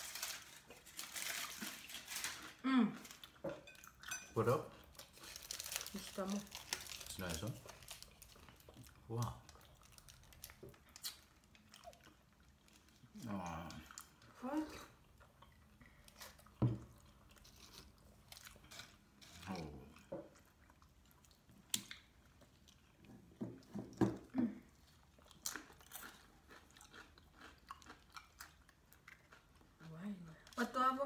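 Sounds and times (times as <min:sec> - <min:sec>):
wet chewing and lip smacks: 0:07.8 - 0:14.3, 0:19.9 - 0:23.4, 0:24.8 - 0:30.6.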